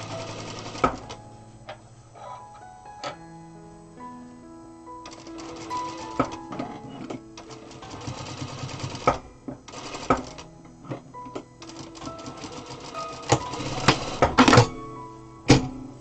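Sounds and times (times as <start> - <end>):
sewing machine rattling: 5.1 - 6.4, 7.4 - 10.5, 11.6 - 14.7.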